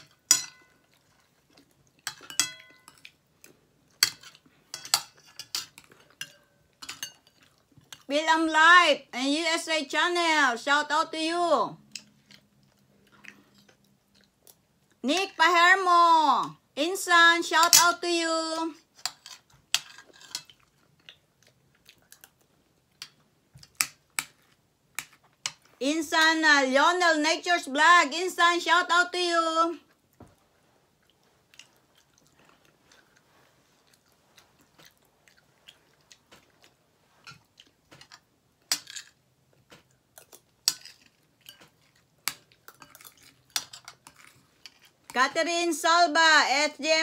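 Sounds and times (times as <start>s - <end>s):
spoons clinking on ceramic bowls: 0.0s - 0.8s, 2.0s - 3.1s, 4.0s - 7.4s
person chewing food: 0.0s - 8.1s, 11.9s - 15.0s, 19.1s - 25.8s, 29.9s - 45.1s.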